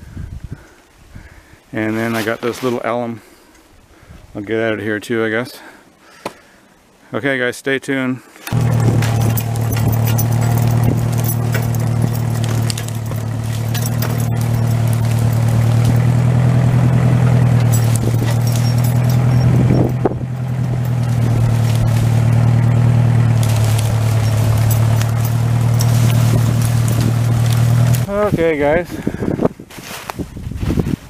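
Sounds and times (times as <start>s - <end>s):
tractor engine running under load: 8.5s - 28.9s.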